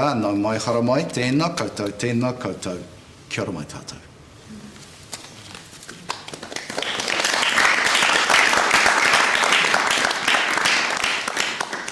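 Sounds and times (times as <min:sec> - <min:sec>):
audience applauding: 0:06.1 - 0:11.9.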